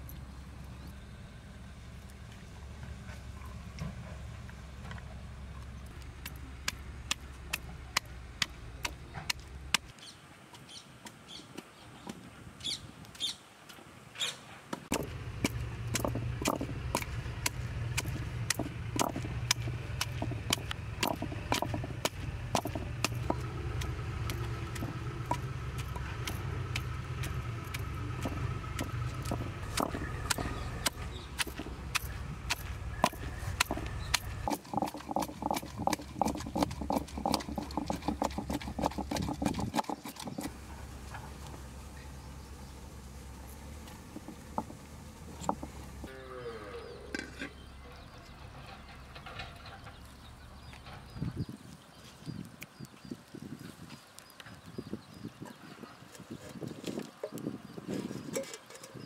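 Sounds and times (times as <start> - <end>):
pestle pounding in stone mortar: 14.9 - 40.5, 44.1 - 45.7
steady low hum: 14.9 - 49.4.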